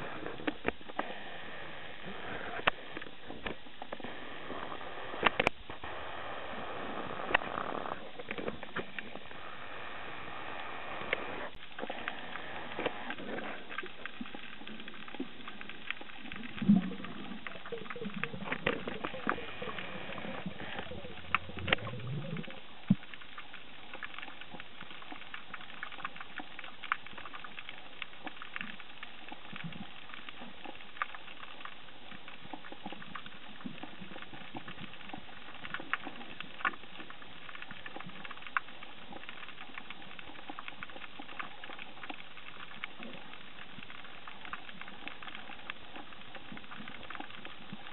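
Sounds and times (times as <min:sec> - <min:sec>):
underwater crackle of small clicks: 0:00.0 - 0:47.9
low rising underwater sound: 0:13.5 - 0:24.5.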